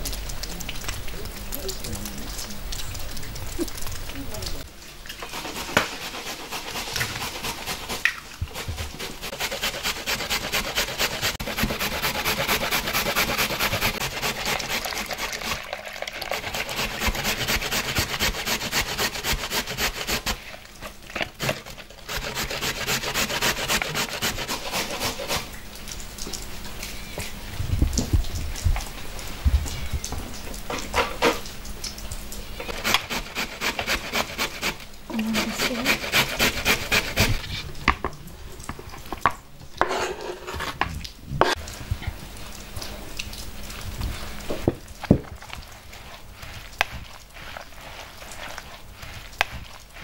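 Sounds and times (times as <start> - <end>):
rapid rhythmic scraping strokes: 5.2 - 20.5, 21.4 - 25.5, 32.7 - 37.4.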